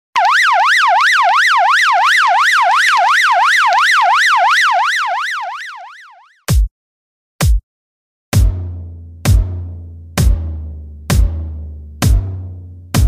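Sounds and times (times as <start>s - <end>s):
electronic siren tone sweeping: 0.2s - 6.4s.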